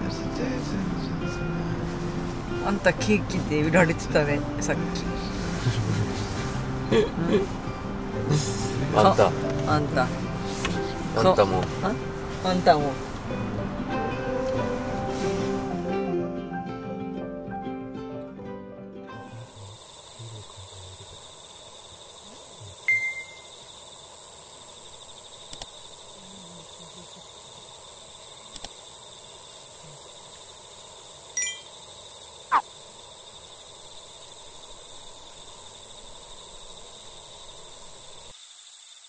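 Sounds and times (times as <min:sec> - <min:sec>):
high insect drone: 0:00.0 - 0:16.5, 0:19.1 - 0:39.0
low outdoor hiss: 0:19.2 - 0:39.0.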